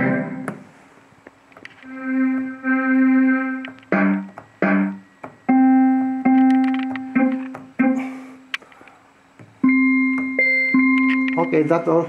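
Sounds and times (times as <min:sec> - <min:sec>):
synthesizer notes: 0:00.0 - 0:00.5, 0:01.9 - 0:08.3.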